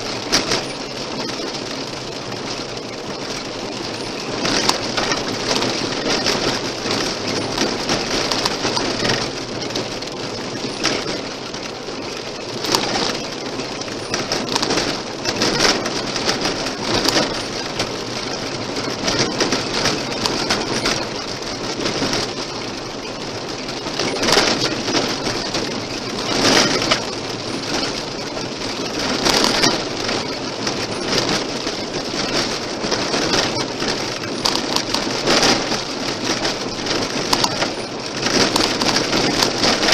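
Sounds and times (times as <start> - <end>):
gravel crackling against car: 0.0 - 39.9
tyre road noise: 0.0 - 39.9.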